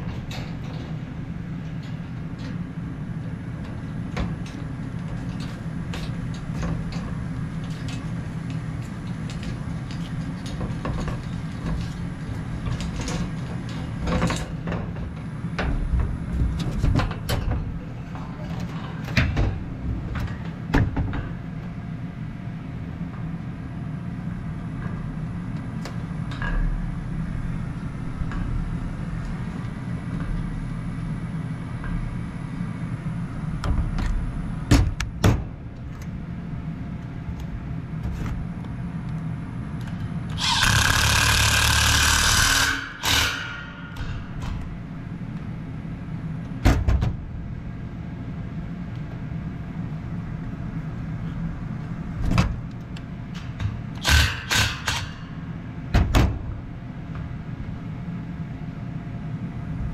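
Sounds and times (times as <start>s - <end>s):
steady low hum: 0.0s - 59.9s
cordless impact driver running: 40.4s - 42.3s.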